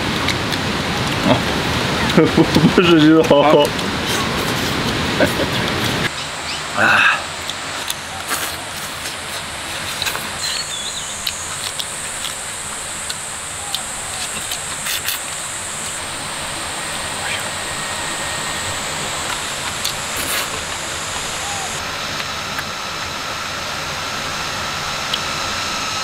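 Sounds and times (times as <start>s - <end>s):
outdoor background hiss: 0.0s - 26.0s
person eating: 6.8s - 22.2s
bird chirp: 10.4s - 12.0s, 15.4s - 21.8s
high insect buzz: 10.4s - 22.5s.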